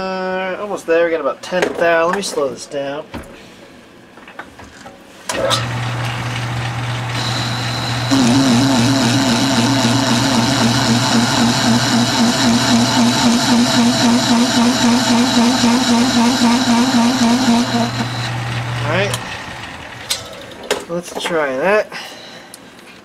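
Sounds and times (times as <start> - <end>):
metal lathe running: 5.4 - 20.3
cutting tool wavering tone: 7.1 - 19.4.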